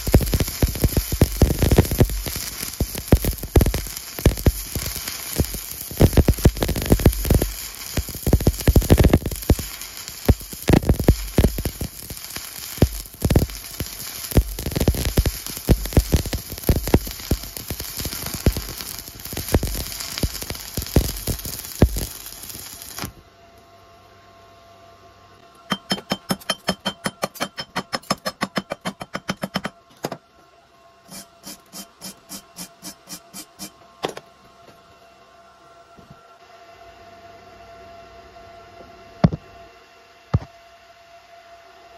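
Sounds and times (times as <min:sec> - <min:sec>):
welding arc crackling and popping: 0:00.0 - 0:23.2.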